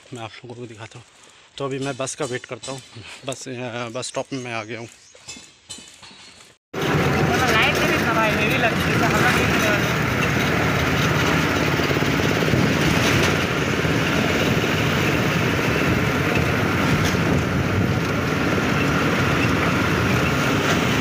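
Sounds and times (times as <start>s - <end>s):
road noise: 4.4s - 21.0s
bus engine drone: 6.8s - 21.0s.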